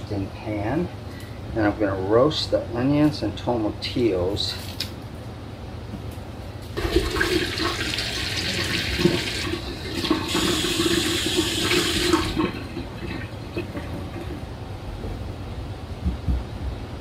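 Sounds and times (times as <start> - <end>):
faucet water splashing in sink: 6.8 - 14.4.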